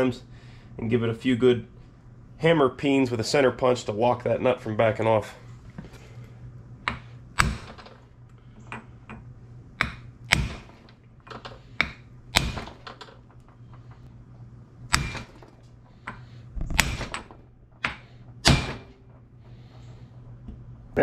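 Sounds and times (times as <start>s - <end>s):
hammer striking metal punch: 6.9s - 7.9s, 9.8s - 10.8s, 11.8s - 12.9s, 14.9s - 15.5s, 16.1s - 19.1s.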